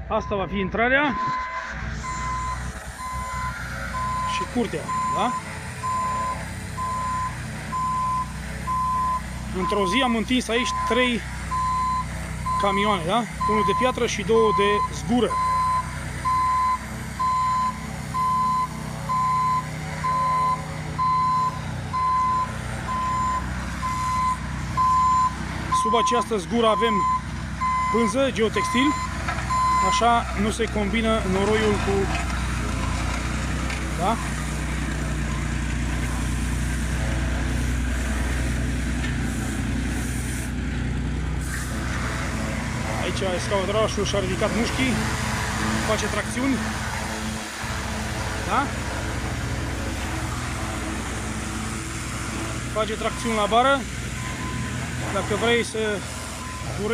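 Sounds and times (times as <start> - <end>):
reversing alarm beeping: 0.0 - 30.6, 34.0 - 34.5, 35.2 - 36.3, 52.9 - 55.4, 56.3 - 56.9
roller engine running: 0.0 - 56.9
roller driving over loose slag: 25.4 - 56.9.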